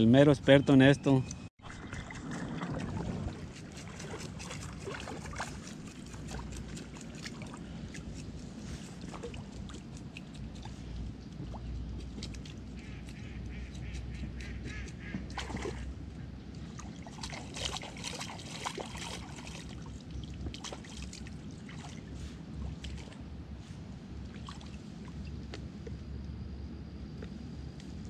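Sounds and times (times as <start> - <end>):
water splashing: 1.6 - 23.2.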